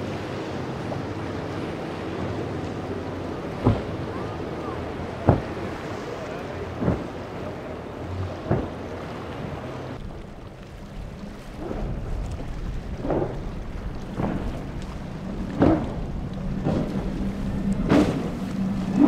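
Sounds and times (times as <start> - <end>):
boat hull slamming waves: 0.0 - 19.0
outboard motor running: 0.0 - 19.0
wind buffeting microphone: 0.0 - 19.0.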